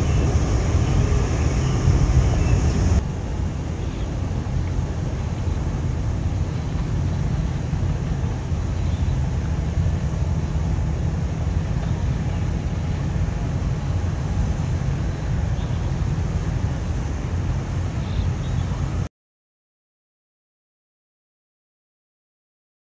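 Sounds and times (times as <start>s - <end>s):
wind buffeting microphone: 0.0s - 19.0s
low outdoor rumble: 0.0s - 19.1s.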